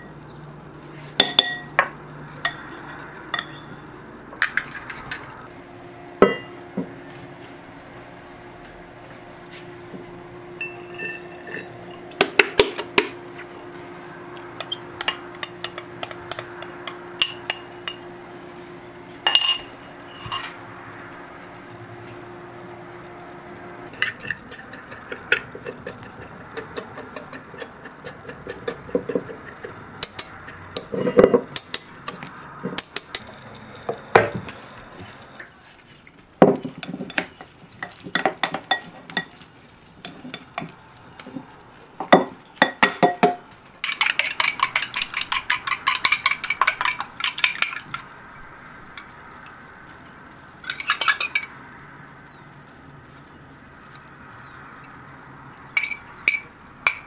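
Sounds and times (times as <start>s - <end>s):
utensils clinking against bowls: 1.2s - 5.4s, 6.2s - 6.5s, 10.6s - 13.4s, 14.1s - 18.1s, 19.2s - 20.6s, 23.9s - 33.3s, 36.5s - 51.6s, 55.8s - 57.0s.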